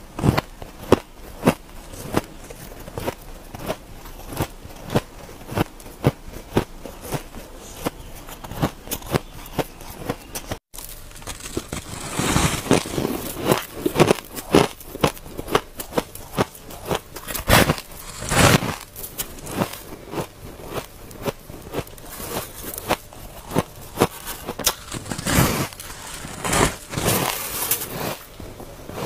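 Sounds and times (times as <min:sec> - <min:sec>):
shaved ice being chewed: 0:00.2 - 0:29.0.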